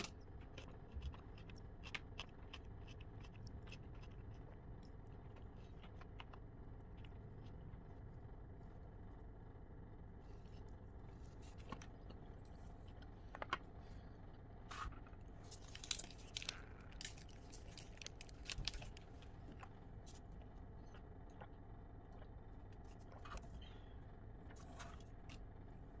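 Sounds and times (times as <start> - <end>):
chewing: 0.0 - 8.0, 10.4 - 14.0
low hum: 0.0 - 26.0.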